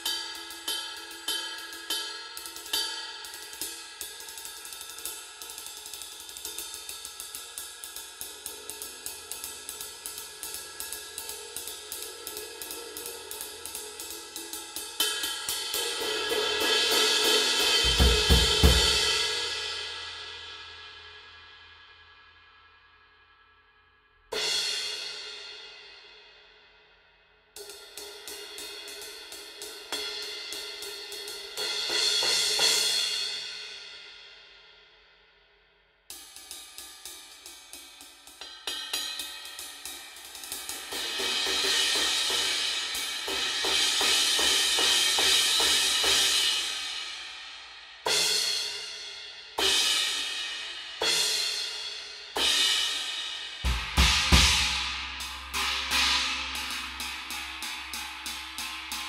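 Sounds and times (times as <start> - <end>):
cymbals struck with drumsticks: 0.0 - 19.9, 36.1 - 59.0
cymbal crash: 49.6 - 59.0.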